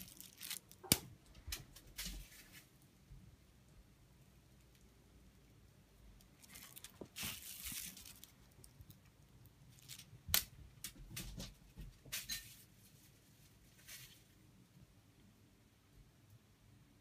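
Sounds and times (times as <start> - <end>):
crinkle ball crinkling: 0.0 - 3.1, 6.0 - 11.2, 12.1 - 14.6.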